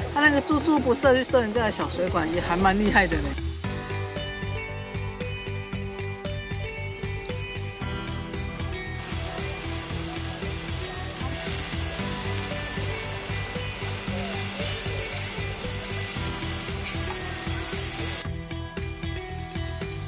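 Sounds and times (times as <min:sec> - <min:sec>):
background music with beat: 0:00.0 - 0:20.0
meat sizzling: 0:06.7 - 0:18.2.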